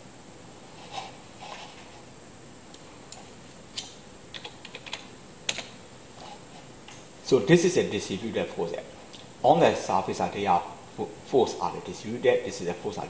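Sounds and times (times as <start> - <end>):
faint steady hiss: 0.0 - 13.0
computer mouse clicks: 3.8 - 5.7.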